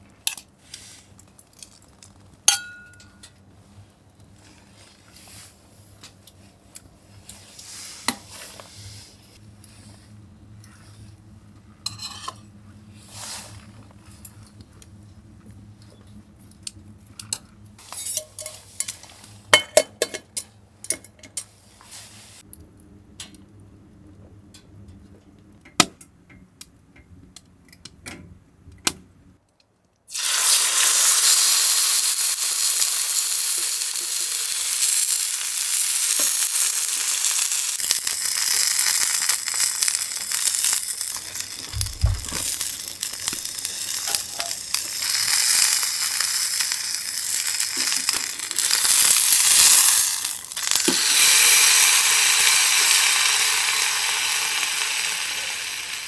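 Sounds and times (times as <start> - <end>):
food sizzling in a pan: 30.1 - 56.0.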